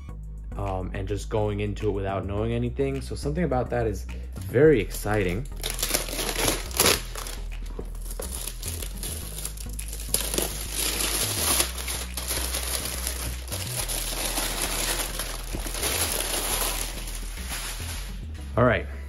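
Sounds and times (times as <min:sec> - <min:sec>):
plastic shrink-wrap tearing: 0:05.5 - 0:18.2.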